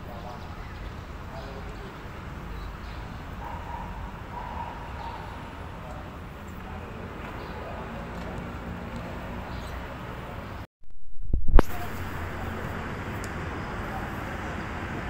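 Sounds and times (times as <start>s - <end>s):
faint distant voices: 0.0s - 10.7s, 11.6s - 15.0s
low rumble: 10.8s - 13.2s.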